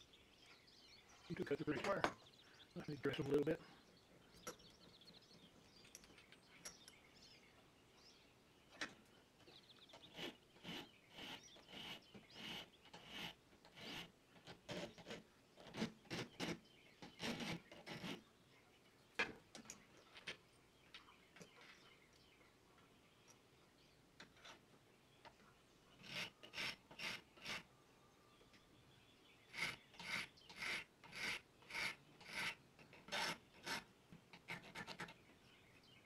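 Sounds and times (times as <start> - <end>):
file rasping on metal: 26.0 - 27.6, 29.5 - 33.8.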